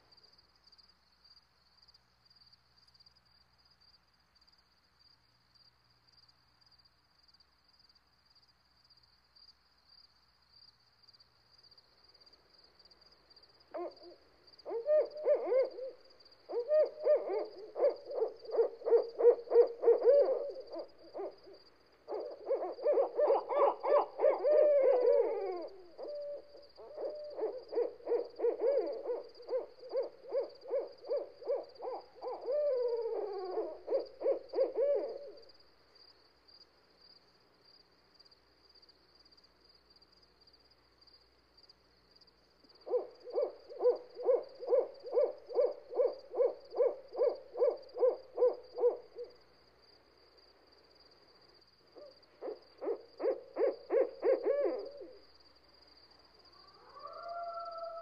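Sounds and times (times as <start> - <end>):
owl hooting: 13.7 - 35.5, 42.8 - 49.4, 52.0 - 55.4, 56.4 - 58.0.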